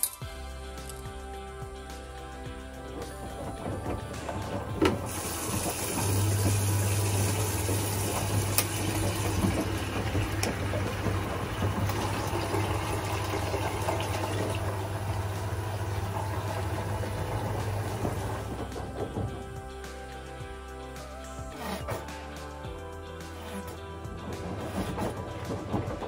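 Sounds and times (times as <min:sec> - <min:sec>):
steady low hum: 0:00.2 - 0:26.0
water pouring into plastic bucket: 0:04.4 - 0:18.9.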